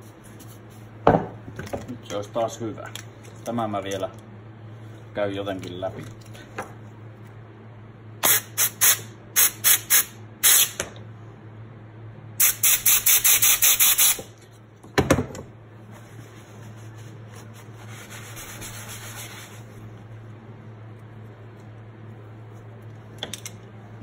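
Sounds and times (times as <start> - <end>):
compressed air hissing blasts: 8.2 - 10.8, 12.4 - 14.3.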